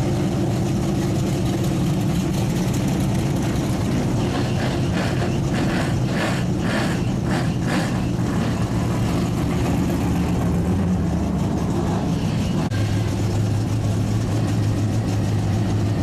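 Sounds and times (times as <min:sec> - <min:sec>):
vehicle engines droning: 0:00.0 - 0:16.0.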